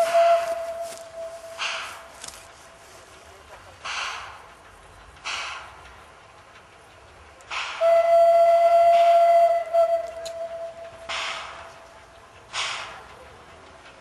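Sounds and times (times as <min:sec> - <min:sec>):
steam locomotive whistle: 0:00.0 - 0:01.8, 0:07.8 - 0:11.4
steam exhaust hiss: 0:00.0 - 0:14.0.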